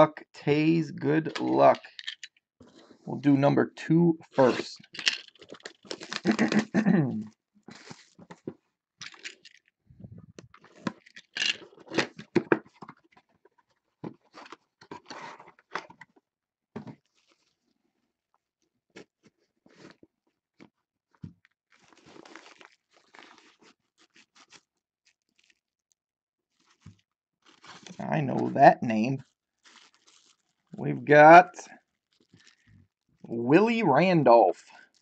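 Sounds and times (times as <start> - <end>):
shrink wrap crinkling and tearing: 4.4 - 7.0, 7.7 - 8.2, 17.0 - 17.6, 21.7 - 28.5, 29.2 - 30.8, 31.8 - 33.3
cloth bag rustling: 21.7 - 25.6, 26.5 - 28.5, 29.6 - 30.7.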